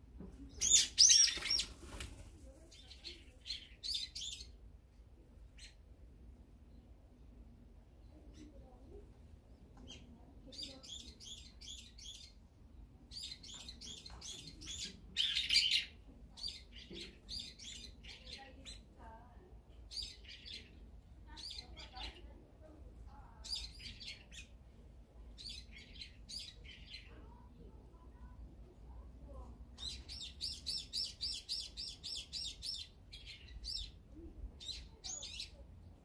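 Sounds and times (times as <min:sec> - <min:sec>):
small songbirds chirping: 0:02.7 - 0:04.6, 0:09.8 - 0:18.9, 0:25.3 - 0:27.2, 0:29.8 - 0:36.0.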